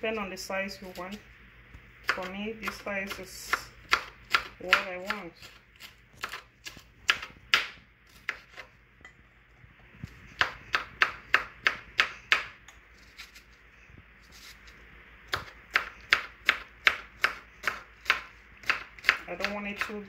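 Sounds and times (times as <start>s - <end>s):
knife chopping on wooden board: 2.1s - 5.6s, 6.2s - 8.7s, 15.3s - 20.0s.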